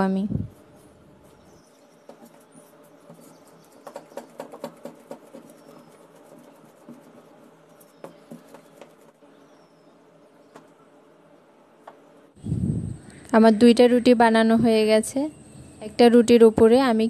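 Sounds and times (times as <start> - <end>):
rolling pin rolling dough: 0.6 - 9.2.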